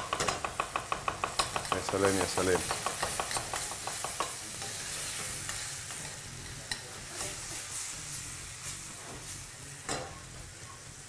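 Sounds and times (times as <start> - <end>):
utensil knocking: 0.0 - 4.4
onions sizzling in a pan: 0.0 - 11.0.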